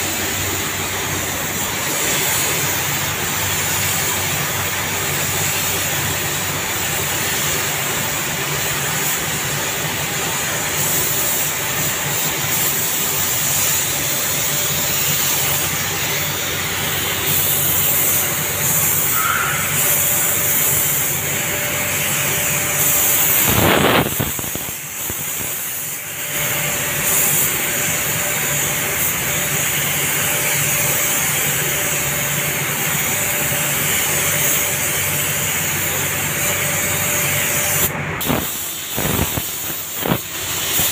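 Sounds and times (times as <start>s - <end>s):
paint spray gun hissing: 0.0s - 40.9s
rush of air: 22.9s - 24.8s.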